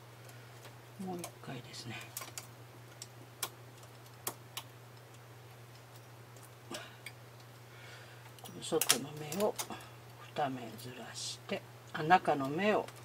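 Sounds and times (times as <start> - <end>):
metal tool clicking on needles: 8.3 - 9.8.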